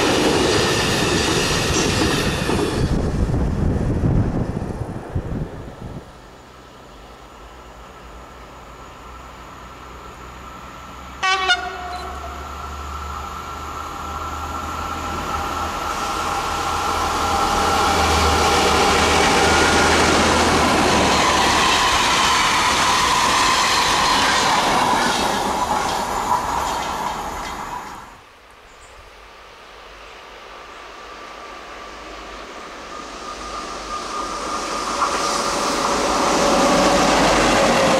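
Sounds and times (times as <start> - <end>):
wheels clattering over rail joints: 0.0 - 3.2
diesel locomotive engine: 0.0 - 28.3, 29.5 - 37.9
locomotive horn blast: 11.2 - 12.5.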